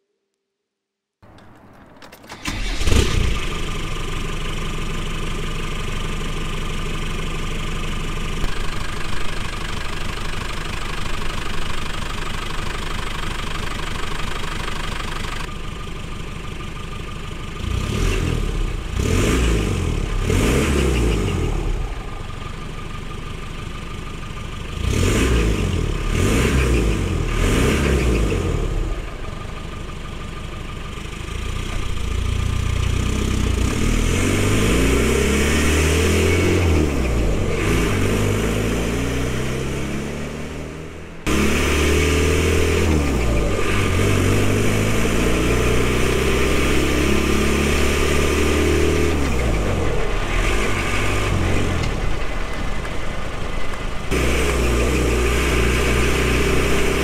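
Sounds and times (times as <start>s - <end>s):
diesel engine starting and idling: 1.2s - 57.0s
engine revving: 2.3s - 4.4s, 17.5s - 22.5s, 24.7s - 29.4s, 31.2s - 57.0s.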